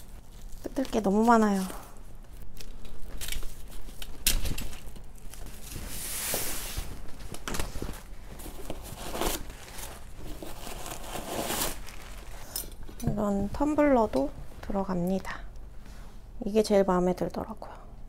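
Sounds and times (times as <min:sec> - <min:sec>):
tearing rustle of paper: 0:00.0 - 0:12.5
tissue paper rustling and crinkling: 0:00.0 - 0:12.5.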